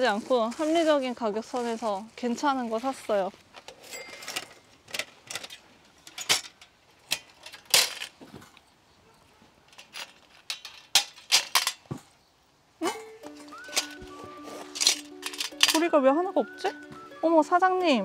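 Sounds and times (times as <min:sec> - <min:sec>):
metal grill parts clinking: 0:03.7 - 0:08.1, 0:12.8 - 0:16.0.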